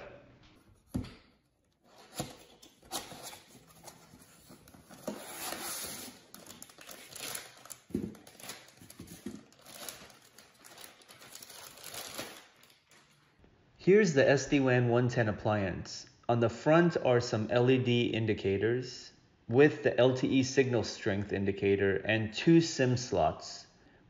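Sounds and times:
foam packing pieces rustling: 0:01.8 - 0:13.2
cardboard box opening: 0:01.9 - 0:12.3
plastic bag crinkling: 0:02.8 - 0:13.2.

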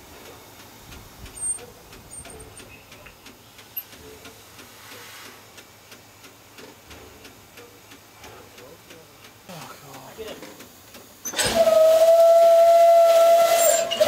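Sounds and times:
hiss of steam: 0:00.0 - 0:14.0
faint clicks and knocks of fittings: 0:00.2 - 0:11.3
click with brief squeak: 0:01.4 - 0:03.1.

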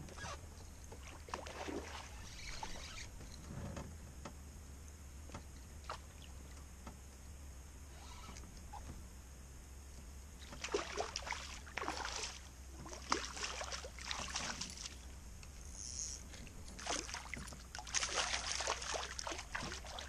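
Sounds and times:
fish splashing in water: 0:00.9 - 0:02.7, 0:10.4 - 0:15.1, 0:16.7 - 0:20.0.

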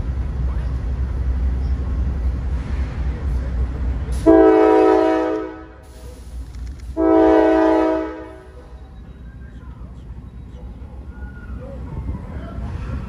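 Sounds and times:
train rumble: 0:00.0 - 0:13.0
locomotive air horn blasts: 0:04.2 - 0:05.9, 0:07.0 - 0:08.5.

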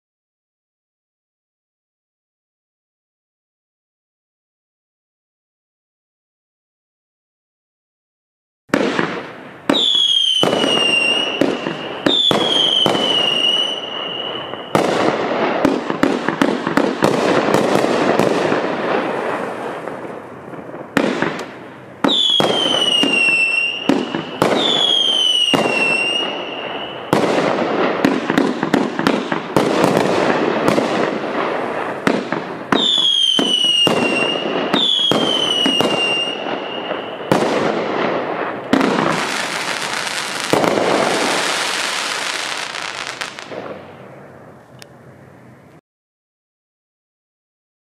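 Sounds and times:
falling firework whistles: 0:08.7 - 0:43.8
dense firework crackling: 0:08.7 - 0:44.4.

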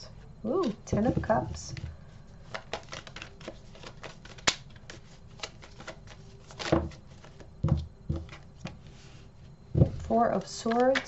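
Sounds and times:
cards being shuffled: 0:01.7 - 0:07.5.

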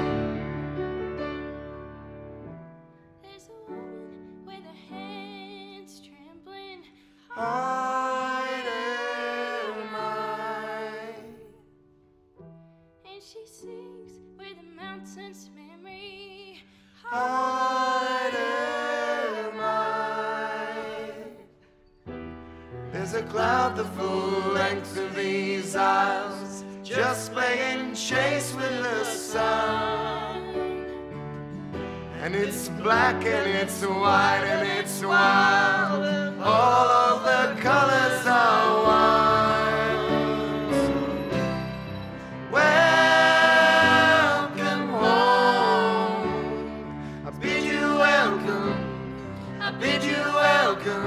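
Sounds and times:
song with sung voices: 0:07.1 - 0:11.6, 0:16.4 - 0:21.7, 0:22.6 - 0:51.0.

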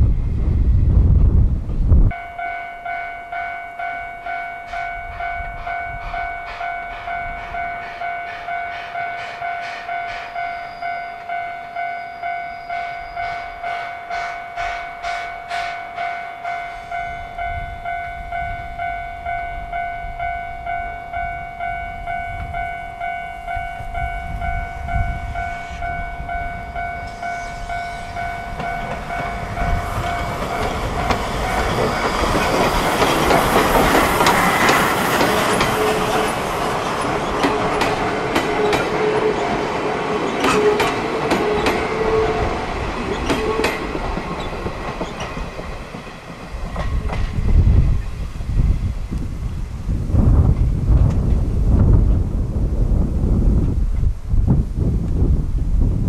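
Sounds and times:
train passing: 0:00.0 - 0:54.4
level-crossing alarm bell: 0:02.1 - 0:42.8.

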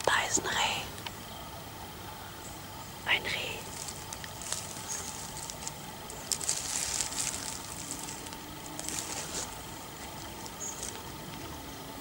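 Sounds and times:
leaves and twigs rustling: 0:02.3 - 0:12.0.

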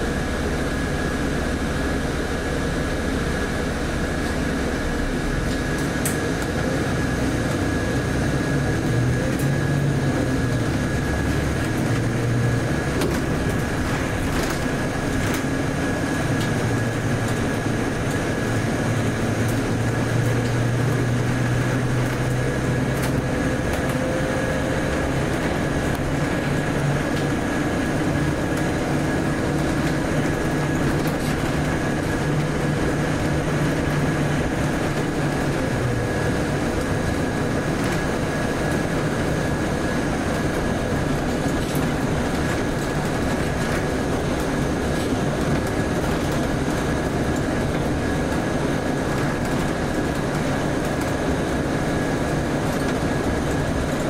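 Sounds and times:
bus diesel engine hum: 0:00.0 - 0:54.0
road noise: 0:00.0 - 0:54.0
steady high whine: 0:00.0 - 0:54.0.

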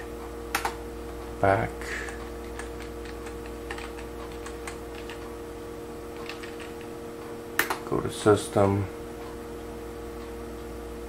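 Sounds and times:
steady hum: 0:00.0 - 0:11.0
computer keyboard clicks: 0:00.5 - 0:00.8, 0:02.1 - 0:05.2, 0:06.2 - 0:06.9.

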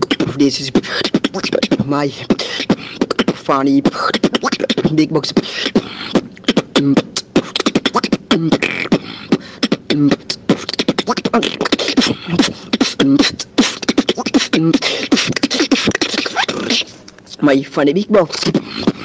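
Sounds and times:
vocal bass phrase: 0:00.0 - 0:02.4, 0:03.1 - 0:13.6, 0:14.5 - 0:14.8
person beatboxing: 0:00.0 - 0:19.0.

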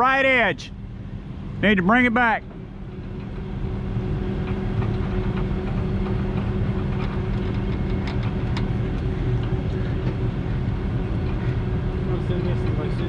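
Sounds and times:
truck engine and winch droning: 0:00.0 - 0:13.0
light clicks and creaks: 0:04.4 - 0:11.6.

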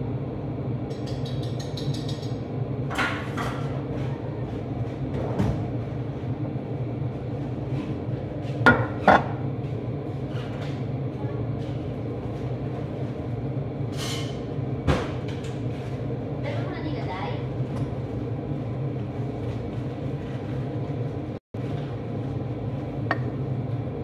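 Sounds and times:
low kitchen hum: 0:00.0 - 0:24.0
kitchenware knocking and clinking: 0:08.7 - 0:09.4.

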